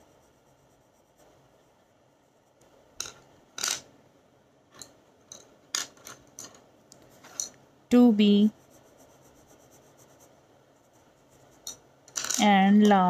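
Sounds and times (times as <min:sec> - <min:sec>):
pencil shading on paper: 0:00.0 - 0:02.7, 0:08.3 - 0:11.7.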